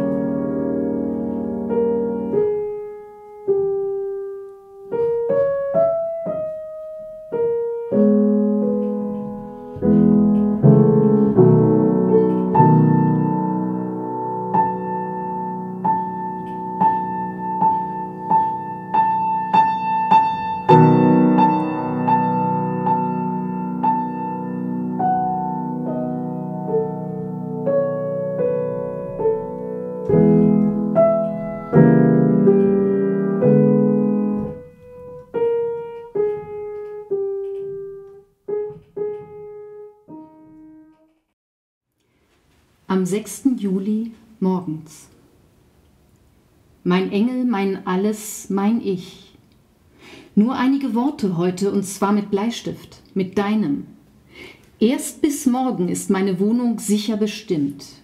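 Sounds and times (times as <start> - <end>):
solo piano classical piece: 0.0 - 41.4.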